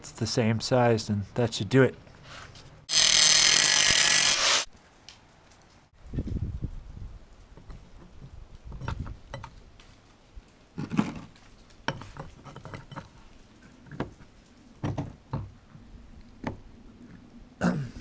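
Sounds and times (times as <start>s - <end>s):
metal ring clinking and knocking: 7.6s - 9.6s, 11.9s - 13.2s.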